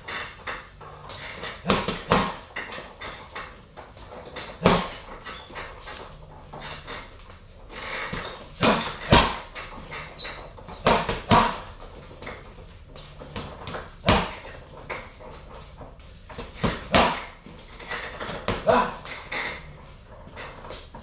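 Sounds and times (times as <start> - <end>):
gloves punching heavy bag: 1.3 - 2.5, 4.4 - 5.2, 7.7 - 9.5, 10.7 - 12.4, 13.2 - 15.0, 16.3 - 17.5, 18.1 - 19.6.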